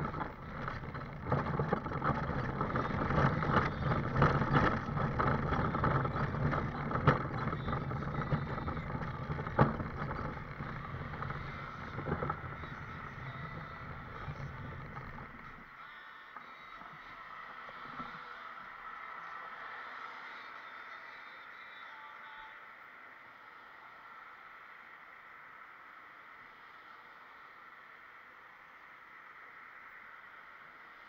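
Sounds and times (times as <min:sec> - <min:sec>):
scooter rolling on pavement: 0:00.0 - 0:15.8.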